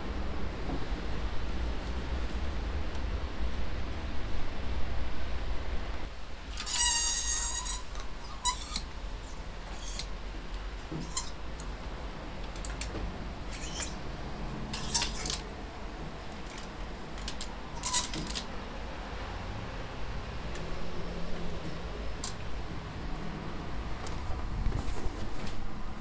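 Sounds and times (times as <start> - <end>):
hangers clinking on a rail: 6.5 - 10.1, 10.9 - 11.7, 13.5 - 14.0, 14.6 - 15.6, 16.3 - 18.5.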